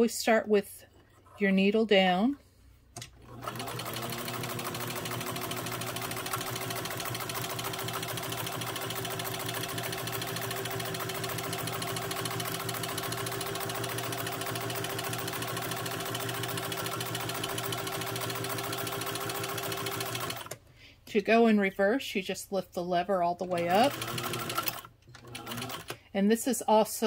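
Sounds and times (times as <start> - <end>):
sewing machine motor hum: 3.0 - 20.6, 23.6 - 26.0
sewing machine needle clatter: 3.0 - 20.6, 23.6 - 26.0.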